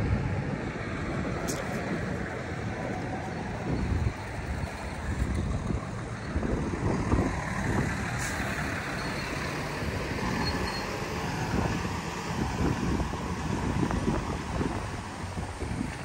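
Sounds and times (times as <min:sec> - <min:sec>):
road traffic passing: 0:00.0 - 0:16.0
truck engine: 0:00.0 - 0:16.0.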